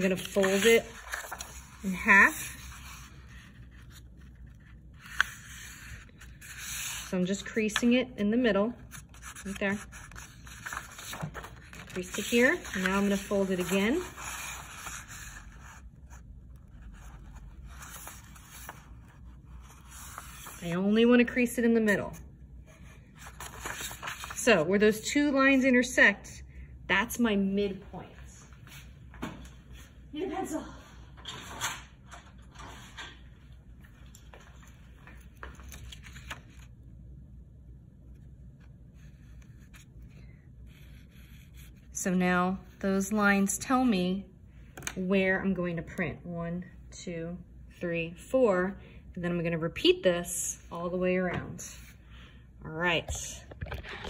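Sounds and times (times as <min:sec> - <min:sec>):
paper being folded: 0:00.0 - 0:07.1, 0:08.8 - 0:20.8, 0:23.2 - 0:24.4
low room hum: 0:00.0 - 0:54.0.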